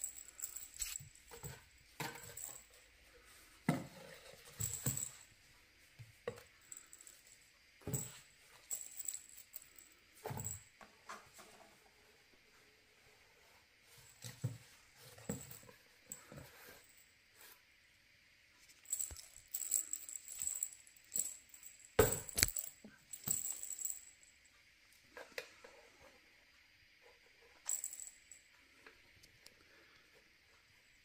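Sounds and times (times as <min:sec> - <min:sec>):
light jingling: 0:00.0 - 0:02.9, 0:18.8 - 0:24.4.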